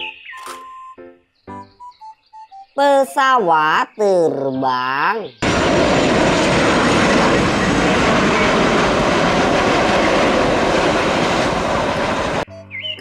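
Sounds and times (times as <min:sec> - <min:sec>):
light music: 0:00.0 - 0:04.0, 0:12.5 - 0:13.0
chirping sounds: 0:00.0 - 0:05.5, 0:12.5 - 0:13.0
jet engines roaring: 0:05.4 - 0:12.5.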